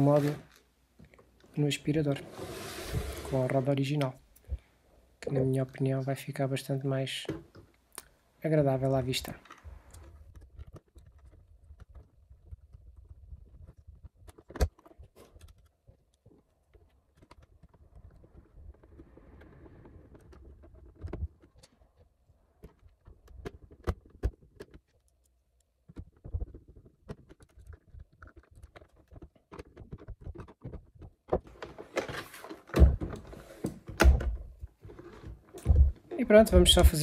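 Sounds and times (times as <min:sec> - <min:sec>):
plastic parts clicking and rattling: 0:08.9 - 0:36.2.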